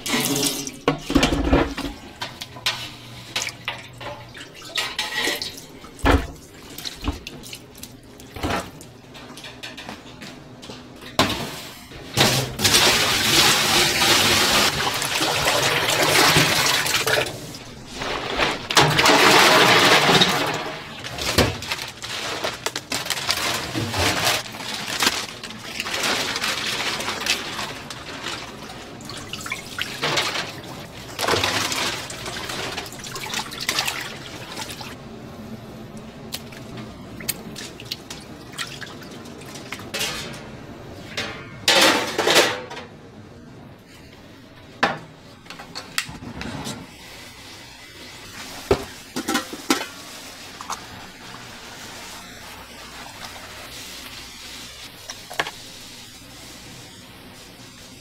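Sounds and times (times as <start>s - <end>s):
dishes and pans clinking: 0.1s - 6.4s, 39.9s - 42.9s, 48.7s - 50.0s
water splashing and pouring: 12.2s - 35.0s.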